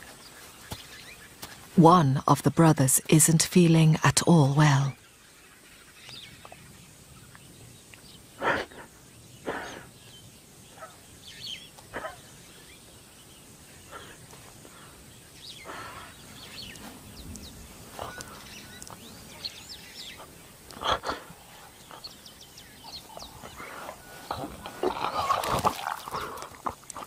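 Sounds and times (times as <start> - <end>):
birds chirping: 0.0 - 27.0
lion retching and gagging: 22.9 - 27.0.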